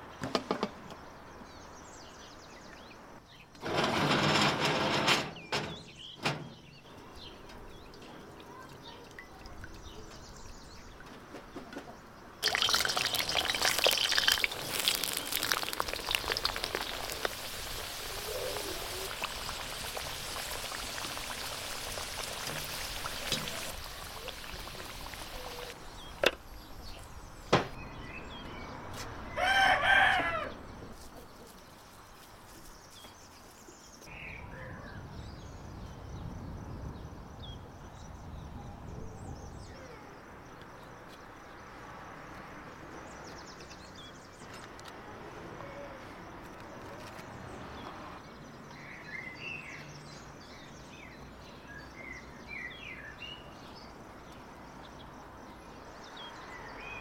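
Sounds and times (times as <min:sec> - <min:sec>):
oil trickling into a wok: 0:12.4 - 0:25.8
potato slices sizzling in oil: 0:12.4 - 0:25.8.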